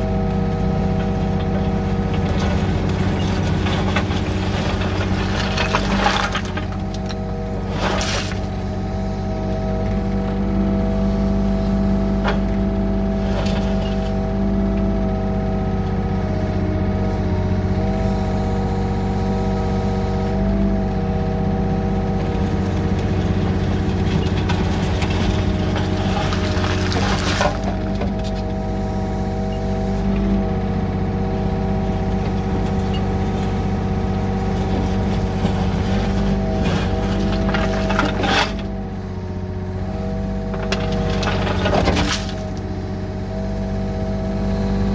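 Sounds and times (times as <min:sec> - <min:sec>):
excavator diesel engine running: 0:00.0 - 0:44.9
bucket scraping gravel: 0:01.0 - 0:09.8, 0:12.2 - 0:14.3, 0:22.2 - 0:28.6, 0:32.2 - 0:38.8, 0:40.4 - 0:42.6.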